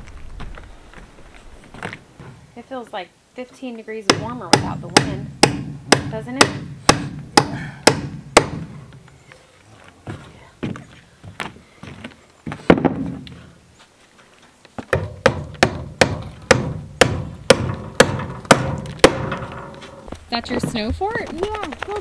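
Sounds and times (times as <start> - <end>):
hammer driving nails into wood: 4.1 - 8.8, 14.9 - 19.7.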